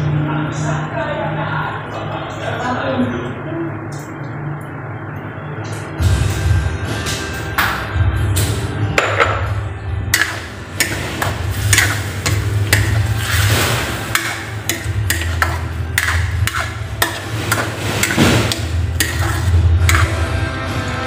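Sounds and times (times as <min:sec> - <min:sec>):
metal spatula scraping a wok: 0:10.2 - 0:20.3.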